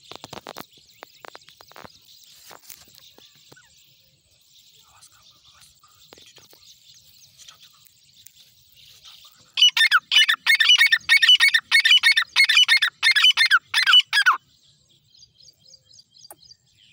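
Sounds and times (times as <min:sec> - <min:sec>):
francolin calling: 0:04.9 - 0:16.9.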